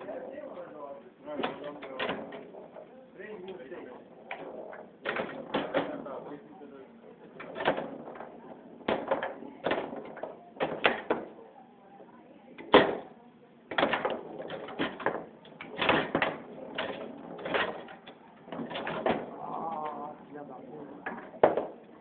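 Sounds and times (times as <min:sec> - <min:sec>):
foosball ball knocking: 0:01.3 - 0:06.3, 0:07.3 - 0:11.4, 0:12.6 - 0:13.1, 0:13.7 - 0:19.9, 0:21.0 - 0:21.9.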